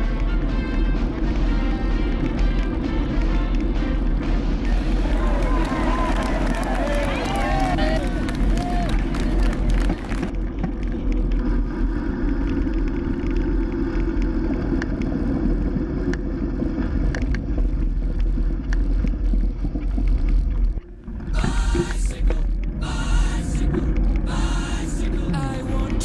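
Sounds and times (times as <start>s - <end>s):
wind buffeting microphone: 4.6s - 20.4s.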